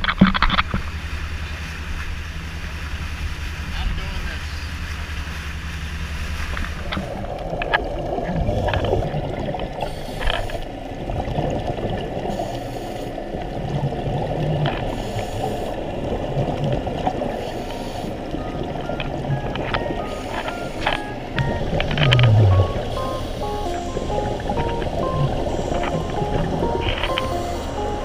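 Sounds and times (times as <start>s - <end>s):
exhaled bubbles underwater: 6.8s - 28.0s
underwater regulator breathing: 9.8s - 10.7s, 14.8s - 15.8s, 17.2s - 18.4s, 20.0s - 23.7s, 27.0s - 28.0s.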